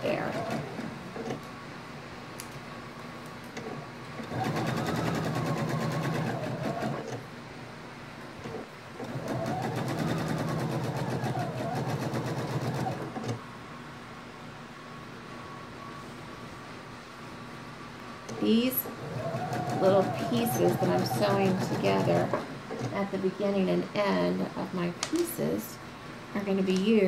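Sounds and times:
sewing machine stitching: 0.0 - 1.4, 3.6 - 7.2, 8.4 - 13.4, 18.5 - 23.0
steady fan hum: 0.0 - 27.0.

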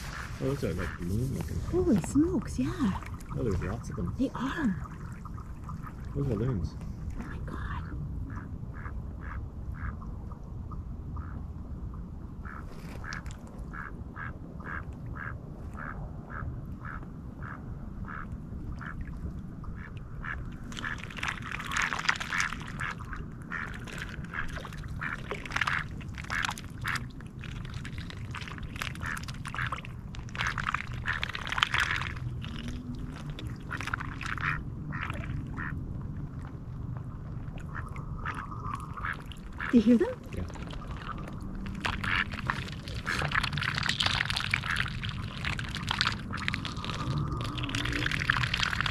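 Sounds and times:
ducks quacking: 0.0 - 6.5, 8.3 - 10.0, 33.6 - 35.8, 37.7 - 40.2, 41.8 - 43.7.

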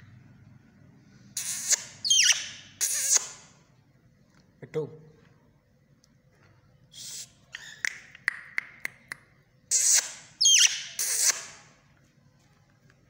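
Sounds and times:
parakeet screeching: 1.4 - 3.4, 9.7 - 11.6.

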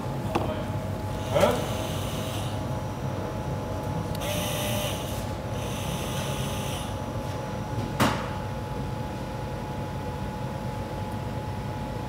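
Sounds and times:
powered sealant gun whirring: 4.1 - 6.9.

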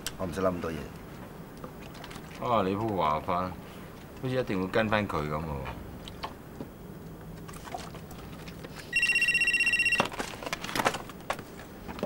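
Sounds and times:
phone ringing with fast trill: 8.9 - 10.2
clicks and rustles: 10.0 - 12.0.

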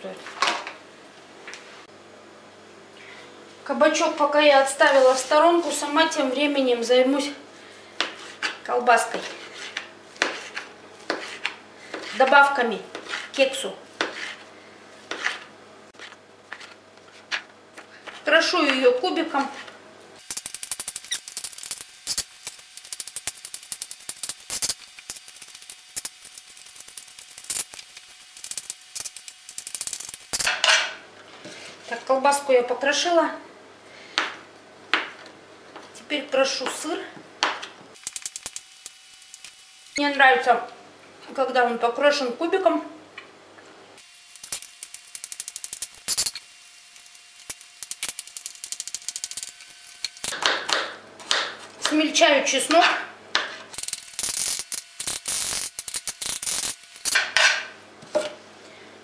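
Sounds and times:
knife chopping on wooden board: 9.6 - 12.2, 14.0 - 14.4, 50.3 - 52.0.

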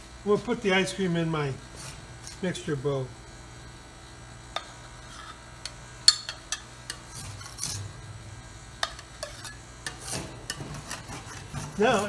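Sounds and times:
refrigeration compressor humming: 0.0 - 12.0
metal spatulas scraping on metal plate: 6.1 - 8.0, 8.8 - 12.0.

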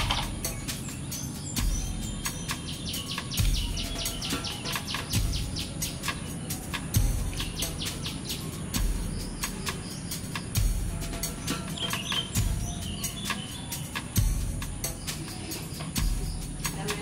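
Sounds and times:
background music with soft beat: 0.0 - 17.0.

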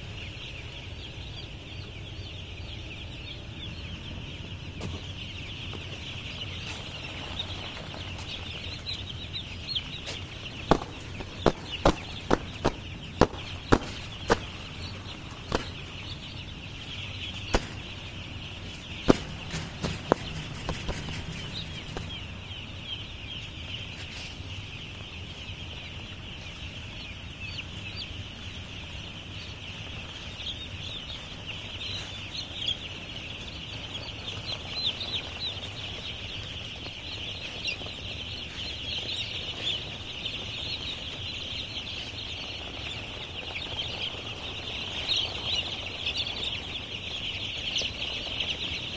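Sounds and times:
chicks peeping: 0.0 - 48.9.

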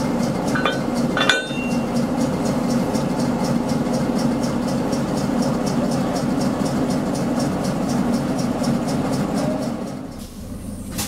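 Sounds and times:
diesel engine idling: 0.0 - 11.0
metallic clink of railway coupling: 0.5 - 2.0.

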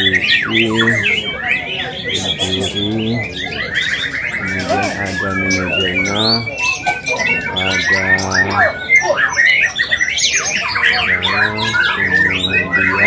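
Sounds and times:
songbirds whistling and trilling: 0.0 - 13.0.

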